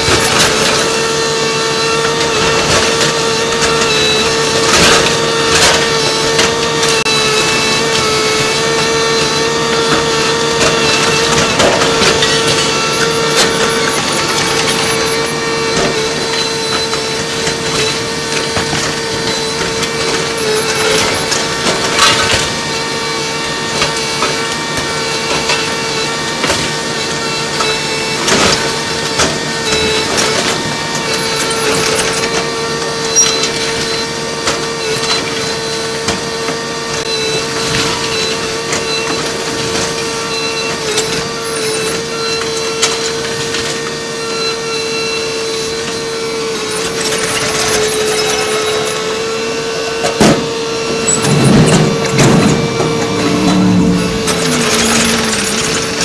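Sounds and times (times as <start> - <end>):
high-pitched machine drone: 0.0 - 36.0, 37.1 - 56.0
falling debris: 51.0 - 56.0.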